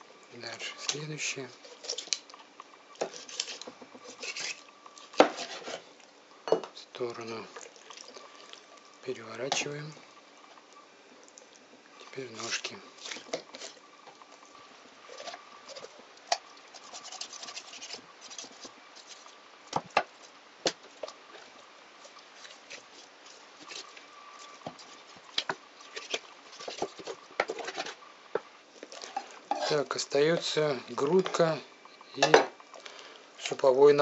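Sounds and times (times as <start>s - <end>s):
scraping and handling raw meat: 0.5s - 6.0s, 12.0s - 31.6s.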